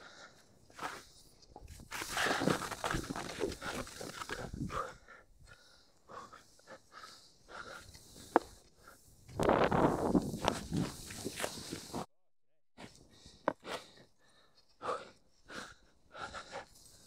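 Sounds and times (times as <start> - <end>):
skis swishing and crunching in snow: 0.7 - 4.6, 9.0 - 12.1.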